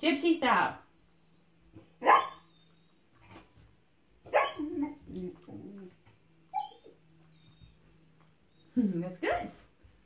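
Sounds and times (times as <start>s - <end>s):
puppy barking: 2.0s - 2.5s, 4.2s - 4.6s
puppy low vocal sounds: 4.6s - 6.8s.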